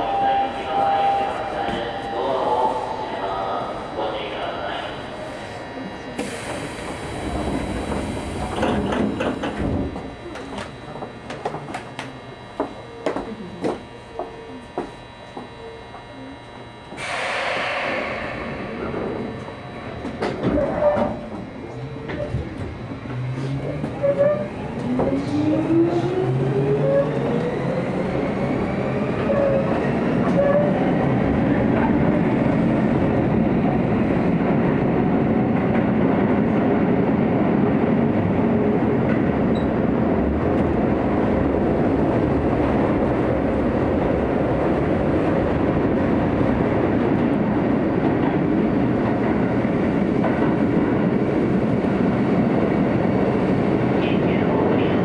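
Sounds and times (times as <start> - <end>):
train traction motors whining: 0.0 - 34.9
wheels rumbling on rail: 0.0 - 55.0.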